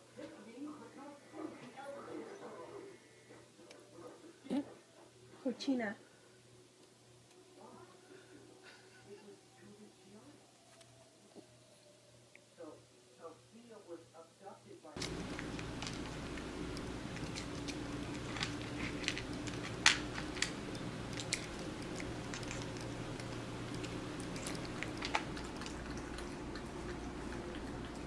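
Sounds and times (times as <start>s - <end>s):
cat chewing crunchy treats: 15.0s - 28.0s.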